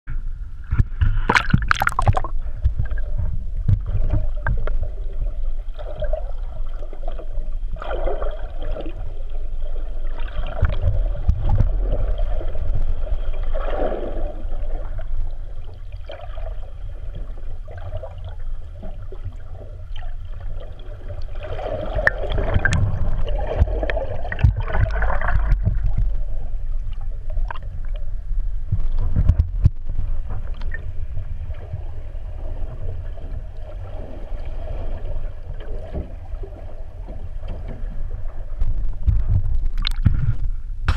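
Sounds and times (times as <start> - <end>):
underwater rumble and gurgles: 0.1 - 40.9
underwater clicks and knocks: 0.6 - 5.2, 10.3 - 13.1, 21.9 - 28.1, 28.7 - 31.8, 35.4 - 40.9.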